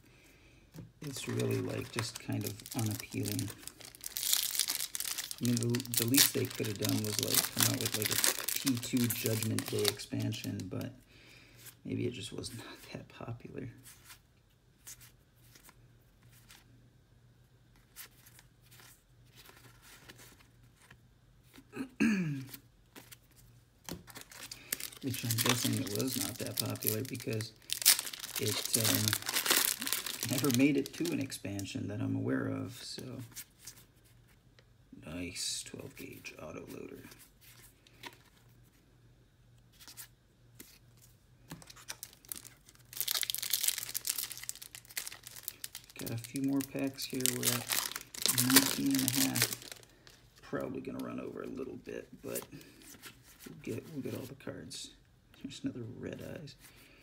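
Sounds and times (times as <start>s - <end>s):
cards rustling and clicking: 0.8s - 10.8s, 17.8s - 21.6s, 22.4s - 31.7s, 39.7s - 50.2s
wrapper torn open crinkling: 1.0s - 10.8s, 24.0s - 31.7s, 41.6s - 50.2s.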